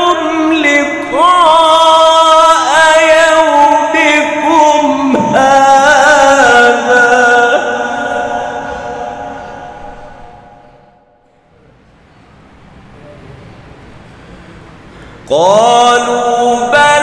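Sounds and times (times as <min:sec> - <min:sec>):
man reciting melodically: 0:00.0 - 0:10.6, 0:15.2 - 0:17.0.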